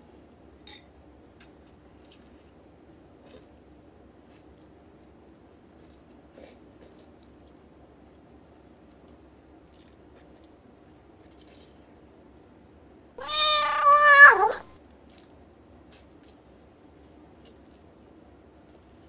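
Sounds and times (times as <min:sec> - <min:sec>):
cat meowing: 0:13.2 - 0:14.8.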